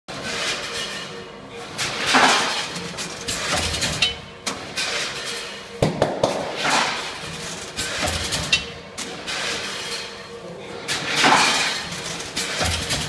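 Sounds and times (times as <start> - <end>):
bagging machine rushing: 10.9 - 13.0.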